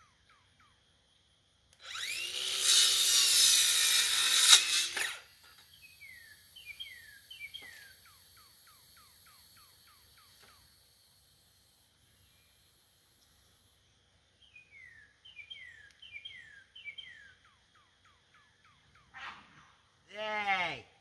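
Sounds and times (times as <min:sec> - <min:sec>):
power tool running on wood: 0:01.8 - 0:05.2.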